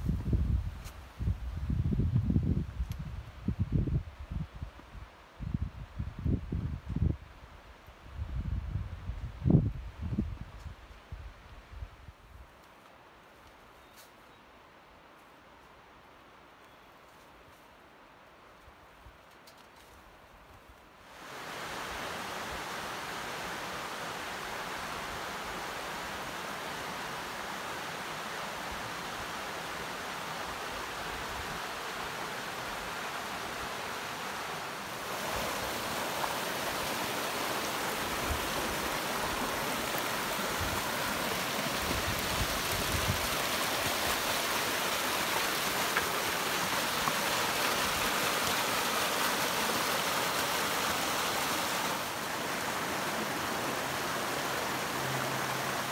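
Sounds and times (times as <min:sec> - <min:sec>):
mountain stream rushing: 0:21.0 - 0:55.9.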